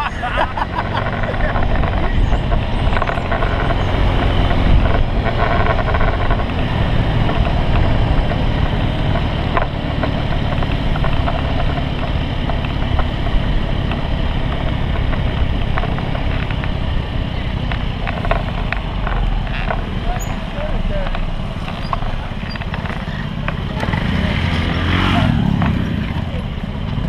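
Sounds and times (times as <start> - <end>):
scooter engine running: 0.0 - 27.0
wind buffeting microphone: 1.3 - 19.5.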